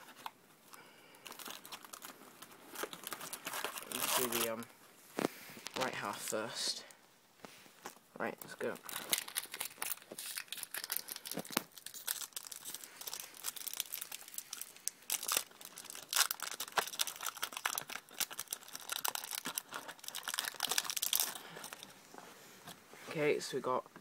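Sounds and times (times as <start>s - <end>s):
foil wrapper crinkling: 0.0s - 4.7s, 7.8s - 22.0s
foil pack tearing open: 2.7s - 4.6s, 8.6s - 21.9s.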